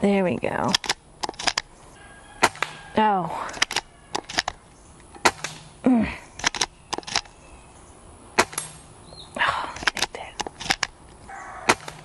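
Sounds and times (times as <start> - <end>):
air rifle shots cracking: 0.7 - 1.7, 2.4 - 2.9, 3.5 - 5.8, 8.3 - 8.9, 11.6 - 12.0
pellets striking steel targets: 2.4 - 2.8, 5.2 - 5.8, 8.4 - 8.9, 11.6 - 12.0.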